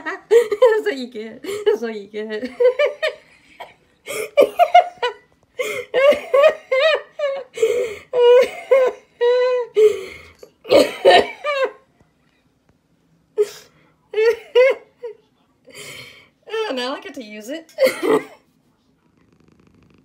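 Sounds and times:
woman laughing hard: 2.4 - 10.0.

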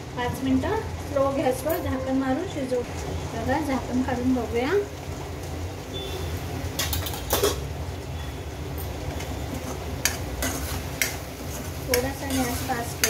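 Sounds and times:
spoon stirring and scraping paste: 9.6 - 13.0.

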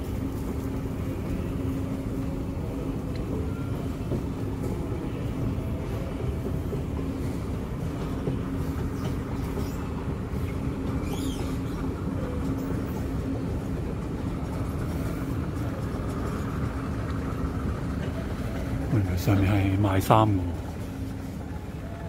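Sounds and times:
escalator machinery rumble: 0.0 - 22.0.

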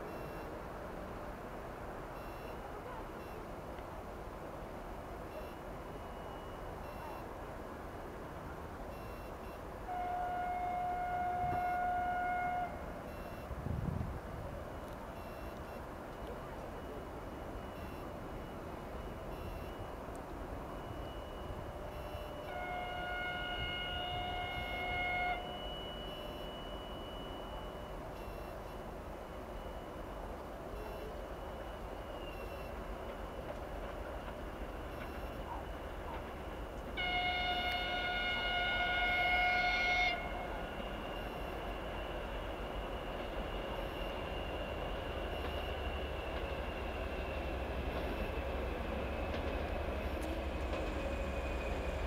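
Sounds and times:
faint short beeps: 0.0 - 0.6, 2.1 - 3.6, 5.2 - 7.5, 8.9 - 13.7, 14.6 - 48.8
low rumble of train: 0.0 - 52.0
locomotive horn: 9.8 - 13.5, 21.9 - 27.4, 34.9 - 44.6.

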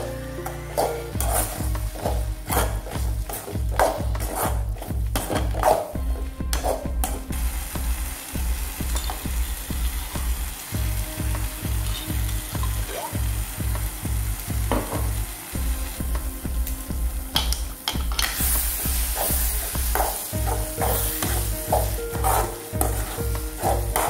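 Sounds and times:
sauce sizzling in oil: 0.0 - 6.0, 6.6 - 24.0
ladle scraping a pan: 0.0 - 7.2, 19.0 - 24.0.

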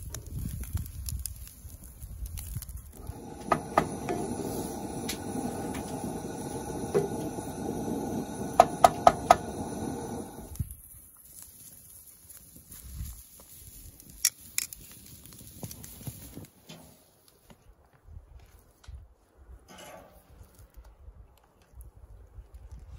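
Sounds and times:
food hissing in a skillet: 0.0 - 14.1
low rumble: 2.9 - 10.6.

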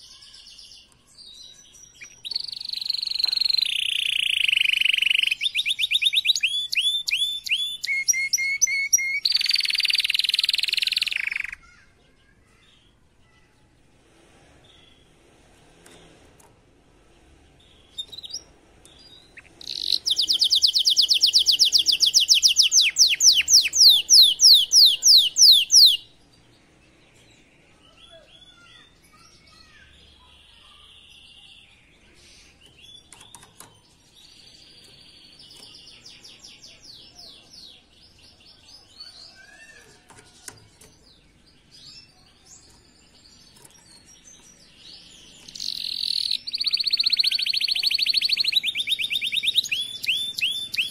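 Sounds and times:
canary trilling: 0.0 - 11.8, 17.6 - 26.2, 28.3 - 50.9
bird twittering: 2.0 - 11.6, 19.1 - 26.1, 44.4 - 50.9.

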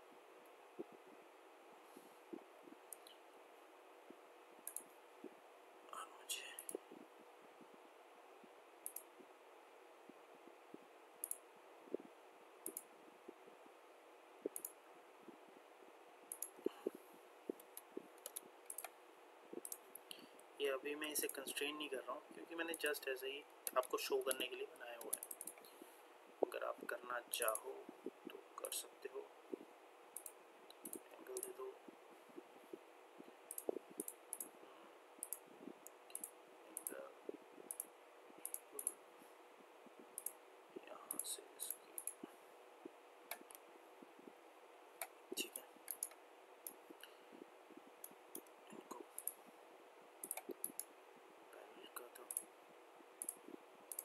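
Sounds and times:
faint steady hum: 0.0 - 54.0
computer mouse clicking: 2.3 - 3.2, 4.6 - 5.0, 6.5 - 7.0, 8.8 - 9.3, 11.2 - 12.9, 14.4 - 14.8, 16.3 - 19.0, 19.6 - 20.5, 23.6 - 26.6, 30.2 - 31.7, 32.4 - 34.6, 35.2 - 39.0, 40.1 - 40.4, 41.1 - 42.4, 43.3 - 43.6, 45.0 - 47.4, 48.0 - 49.4, 50.2 - 50.9, 52.1 - 52.5, 53.2 - 54.0.

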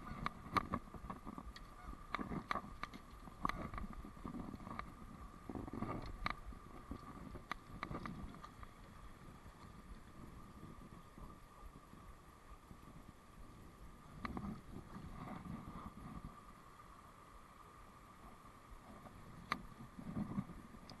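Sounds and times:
stream running over weir: 0.0 - 21.0
sharp clicks and knocks: 0.2 - 4.9.

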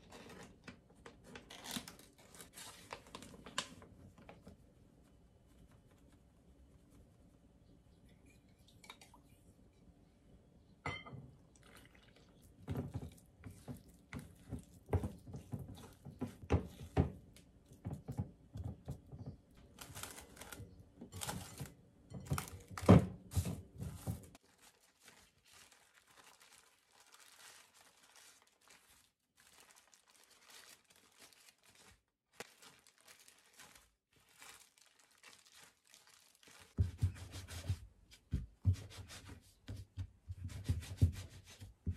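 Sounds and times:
cling wrap crinkling: 0.0 - 4.6, 19.6 - 22.9, 24.0 - 36.8.

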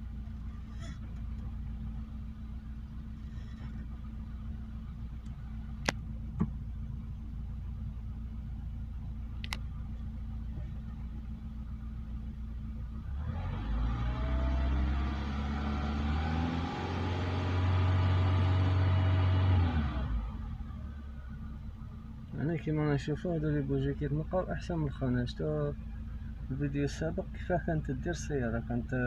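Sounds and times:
car engine idling and revving: 0.0 - 29.0
sharp clicks: 9.4 - 9.7.

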